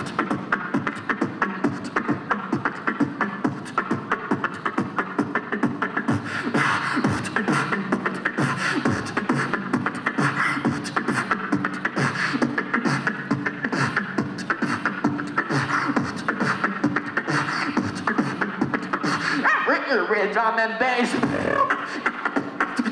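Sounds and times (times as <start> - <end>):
beatboxing through a microphone: 0.0 - 22.9.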